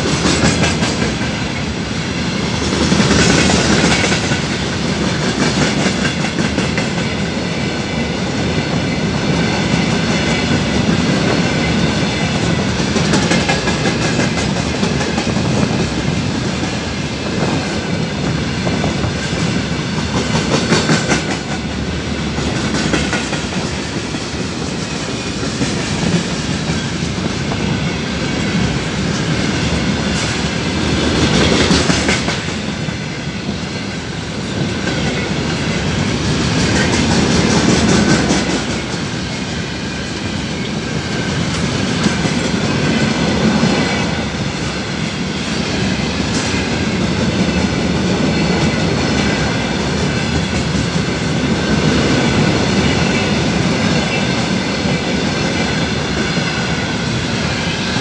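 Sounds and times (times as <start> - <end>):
clickety-clack over rail joints: 0.0 - 1.7, 2.4 - 58.0
train wheels rumbling on rails: 0.0 - 58.0.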